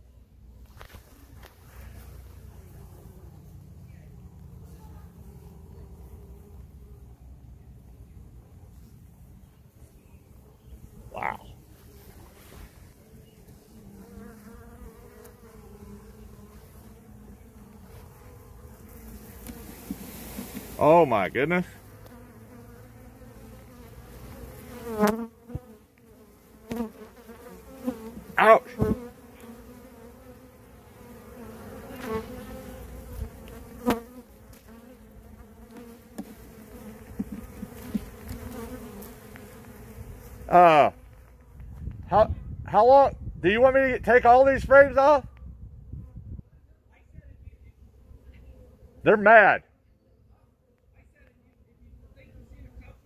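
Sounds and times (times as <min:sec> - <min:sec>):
honey bees buzzing: 0:00.0 - 0:41.7.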